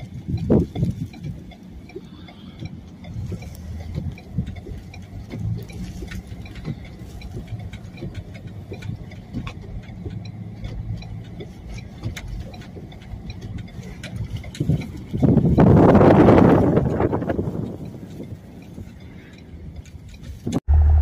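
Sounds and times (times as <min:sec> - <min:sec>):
vehicle engine humming: 0:00.0 - 0:21.0.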